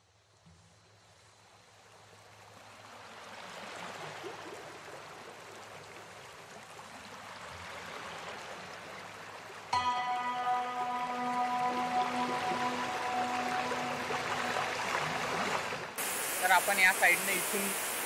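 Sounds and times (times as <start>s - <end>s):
waterfall rushing water: 9.8s - 18.0s.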